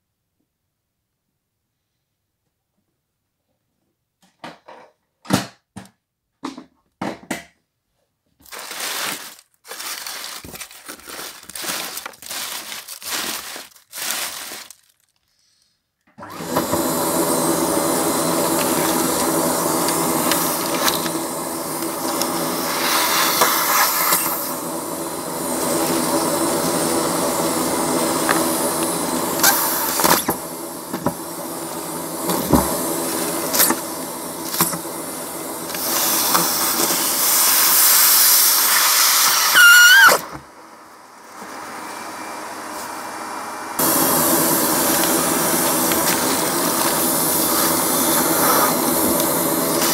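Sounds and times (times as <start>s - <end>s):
vacuum cleaner running: 8.4s - 15.0s, 16.2s - 49.9s
plastic and paper crinkling: 8.4s - 15.7s.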